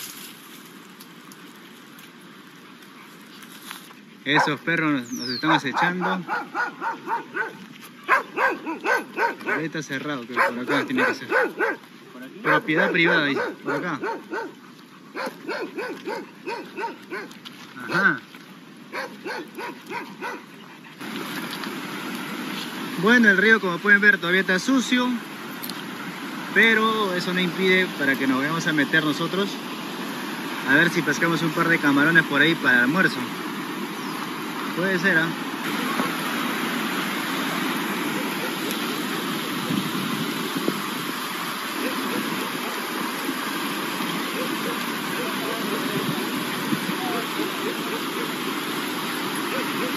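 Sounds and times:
river rushing over stones: 0:00.0 - 0:49.9
dog barking: 0:04.3 - 0:04.7, 0:05.4 - 0:18.1, 0:18.9 - 0:20.5, 0:38.0 - 0:38.7, 0:44.2 - 0:45.7, 0:49.5 - 0:49.9.

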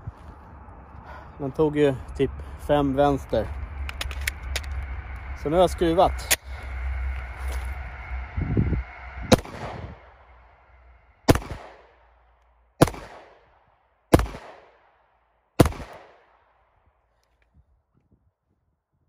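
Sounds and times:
pistol shots echoing: 0:12.8 - 0:13.4, 0:14.1 - 0:14.7, 0:15.6 - 0:16.2.

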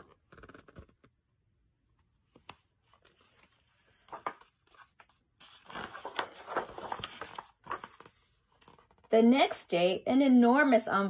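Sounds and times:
paper pages rustling: 0:02.3 - 0:09.1.

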